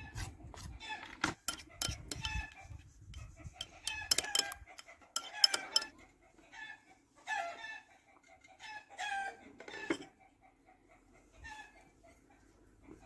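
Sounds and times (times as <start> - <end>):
chickens clucking and cackling: 0.0 - 13.0
sharp clinks: 3.6 - 5.9.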